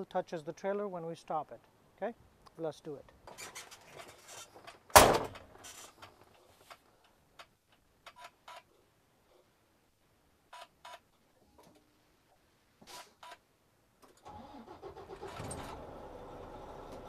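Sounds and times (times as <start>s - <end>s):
truck cab door slamming: 4.9s - 5.4s.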